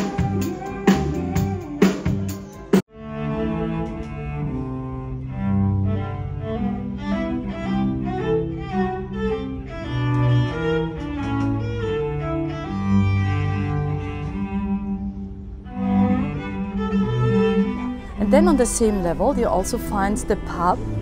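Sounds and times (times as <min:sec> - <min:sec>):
band music with drum hits: 0:00.0 - 0:02.8
violin and cello playing: 0:02.9 - 0:21.0.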